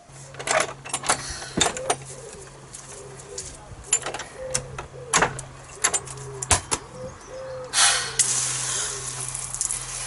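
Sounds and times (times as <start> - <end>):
pigeon cooing: 1.4 - 9.6
spraying water hissing: 7.8 - 10.0.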